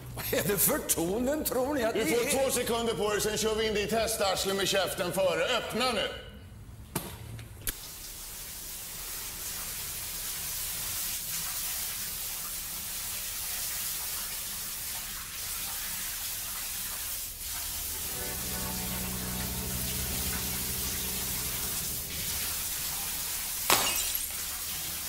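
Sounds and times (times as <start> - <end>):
shower running: 7.7 - 25.0.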